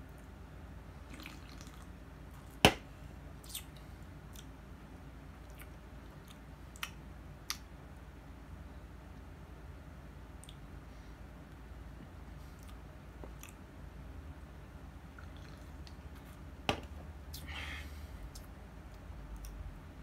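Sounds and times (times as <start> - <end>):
wet mouth clicks and smacks: 10.4 - 10.7.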